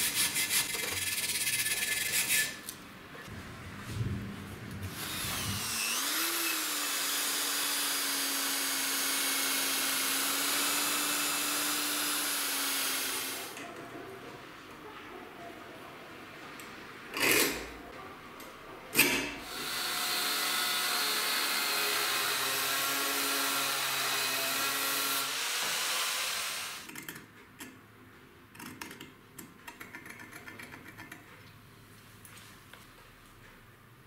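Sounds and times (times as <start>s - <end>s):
angle grinder cutting steel: 4.9s - 13.6s, 19.4s - 26.9s.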